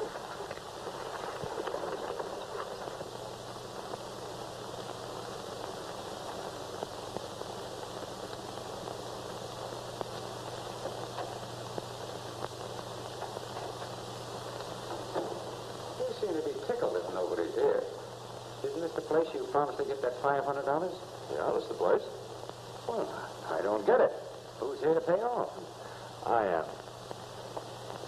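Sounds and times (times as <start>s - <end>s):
film soundtrack hiss and crackle: 0.0s - 28.0s
faint ticks: 4.8s - 15.3s, 27.0s - 28.0s.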